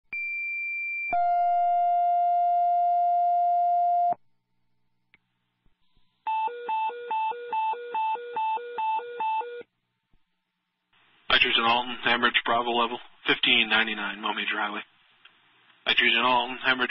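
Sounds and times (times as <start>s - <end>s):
two-tone radio paging tones: 6.3s - 9.7s.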